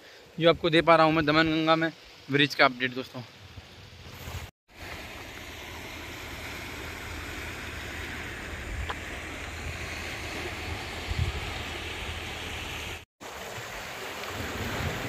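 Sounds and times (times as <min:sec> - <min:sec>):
steady hiss: 0:00.0 - 0:13.0
wind buffeting microphone: 0:08.1 - 0:12.9.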